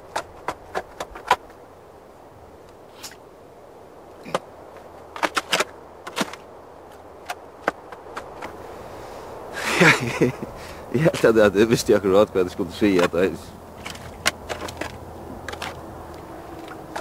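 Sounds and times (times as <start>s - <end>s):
digging knocks in earth: 0.0s - 1.6s, 4.2s - 8.6s, 12.9s - 15.9s
faint steady hiss: 0.0s - 17.0s.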